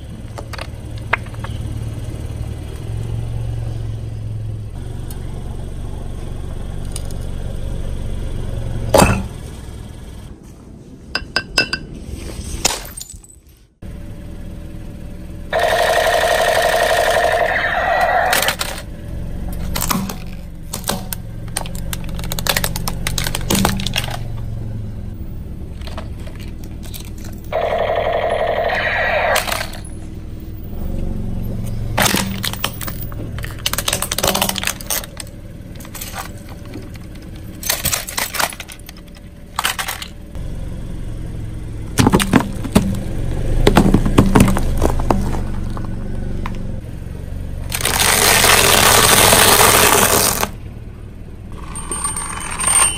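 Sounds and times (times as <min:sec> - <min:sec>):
low engine hum: 0:00.0 - 0:12.6, 0:13.7 - 0:52.9
car tyre rolling: 0:14.2 - 0:52.9.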